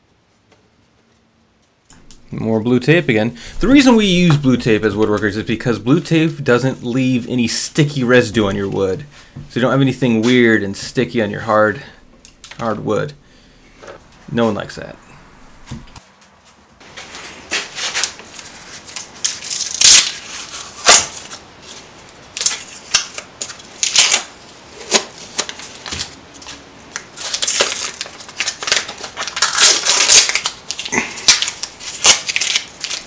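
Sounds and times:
tape ripping and crinkling: 17.0 - 33.0.

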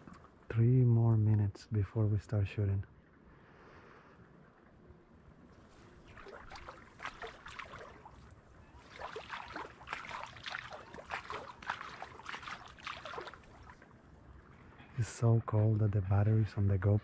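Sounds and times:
splashing in shallow water: 5.5 - 14.2.

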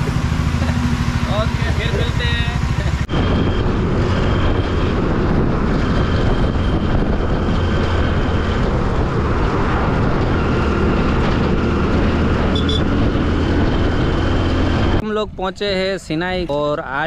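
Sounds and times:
motorcycle engine running: 0.0 - 15.0
wind rush on microphone: 0.0 - 17.0.

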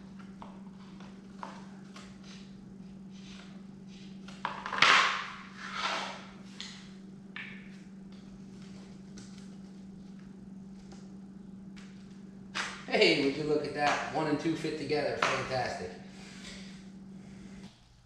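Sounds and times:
steady low hum: 0.0 - 18.0
board scraping on tile floor: 4.4 - 6.4.

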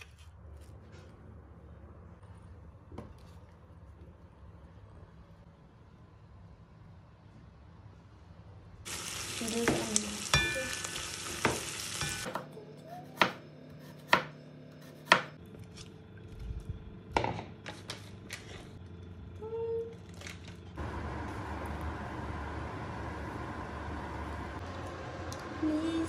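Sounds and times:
kitchenware clinking: 9.7 - 12.4.

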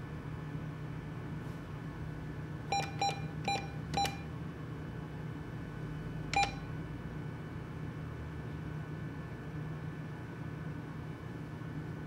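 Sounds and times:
low machine hum: 0.0 - 12.0
keypad beeps: 2.7 - 4.3, 6.3 - 6.7.

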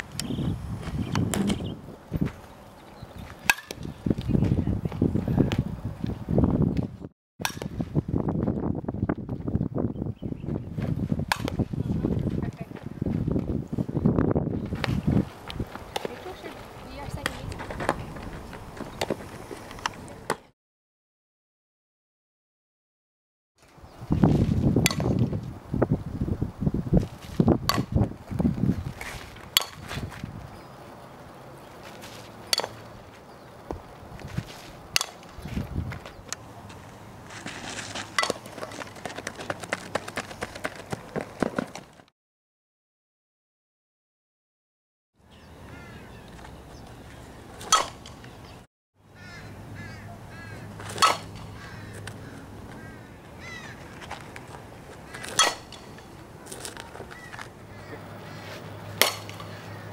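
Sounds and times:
birds chirping: 0.2 - 5.4, 9.8 - 10.8, 15.6 - 20.2, 30.4 - 33.8, 45.2 - 59.9
bat cracking against ball: 3.5 - 3.8, 7.4 - 7.8, 11.3 - 11.6, 24.8 - 25.3, 27.6 - 28.0, 29.5 - 30.0, 32.5 - 32.8, 34.9 - 35.3, 37.4 - 38.7, 47.6 - 48.3, 50.8 - 52.2, 55.1 - 57.5, 58.9 - 59.6.

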